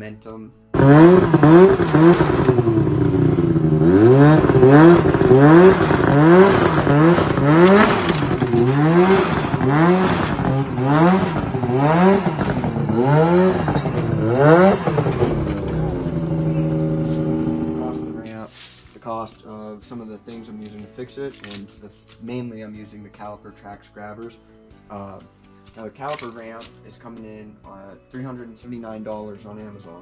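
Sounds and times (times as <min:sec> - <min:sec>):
snowmobile engine revving: 0:00.8 - 0:18.4.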